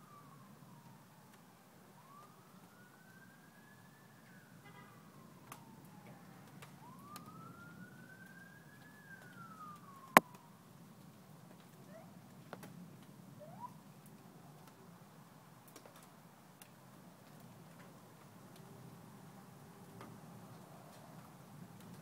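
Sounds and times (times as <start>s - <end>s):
distant siren wailing: 0.0s - 10.7s.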